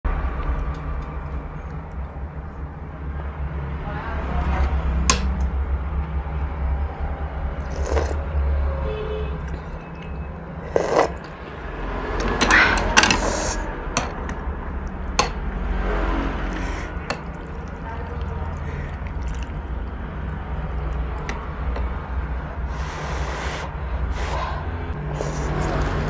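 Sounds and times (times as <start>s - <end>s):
sipping broth: 7.5s - 8.4s, 9.3s - 11.4s, 15.9s - 26.0s.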